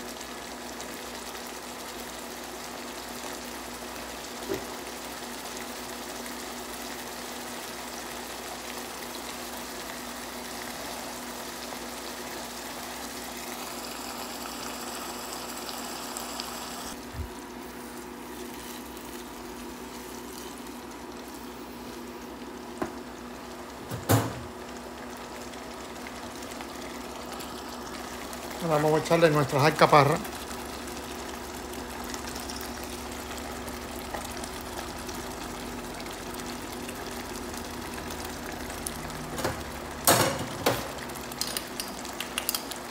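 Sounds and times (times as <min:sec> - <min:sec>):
sauce bubbling in a pan: 0:00.0 - 0:42.9
knock against a pan: 0:23.9 - 0:24.5.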